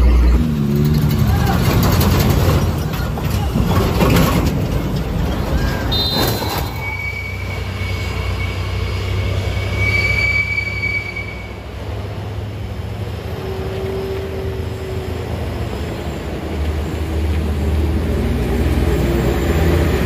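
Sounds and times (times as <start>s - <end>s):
truck rumbling past: 0.0s - 20.0s
brake squeal: 5.2s - 12.0s, 13.0s - 17.1s.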